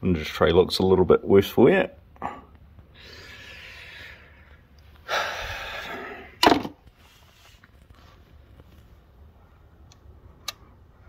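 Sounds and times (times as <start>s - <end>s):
person breathing: 2.2s - 6.4s.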